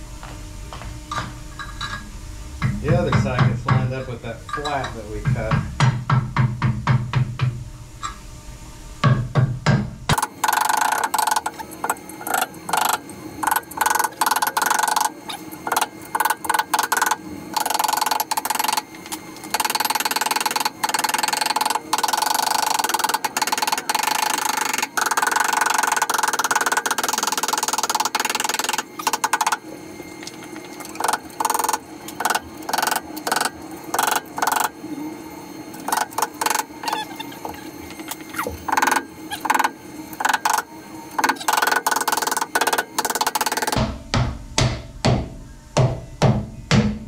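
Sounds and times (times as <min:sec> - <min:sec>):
mallet knocking on metal: 0:02.6 - 0:07.6, 0:43.7 - 0:47.0.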